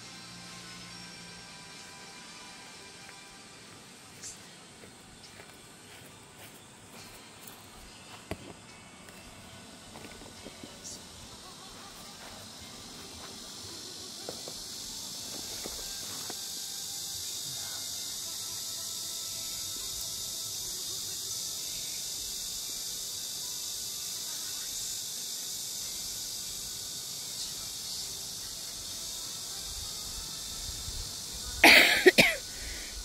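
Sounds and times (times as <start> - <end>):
insect chorus drone: 0.0 - 33.0
person coughing: 31.6 - 32.6.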